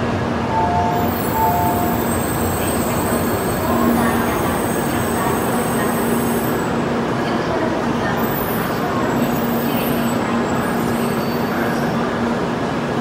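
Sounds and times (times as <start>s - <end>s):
train rolling to a stop: 0.4s - 7.2s, 8.0s - 13.0s.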